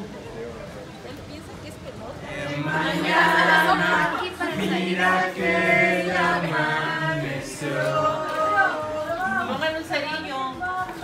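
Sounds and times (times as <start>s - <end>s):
group singing unaccompanied: 2.2s - 9.8s.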